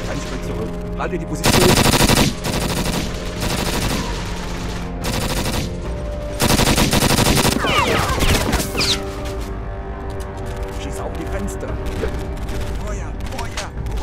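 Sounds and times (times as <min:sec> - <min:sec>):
automatic gunfire bursts: 0:01.4 - 0:05.8, 0:06.4 - 0:08.0
scattered gunshots: 0:01.4 - 0:08.7.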